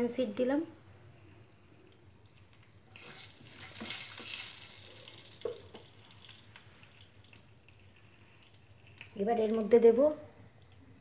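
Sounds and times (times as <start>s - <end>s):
seeds sizzling in hot oil: 2.3s - 9.8s.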